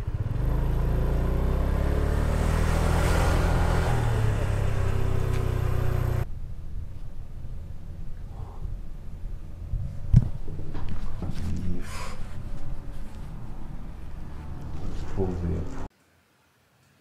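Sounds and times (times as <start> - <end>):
motorcycle engine running: 0.0 - 11.6
wind on microphone: 6.6 - 11.8.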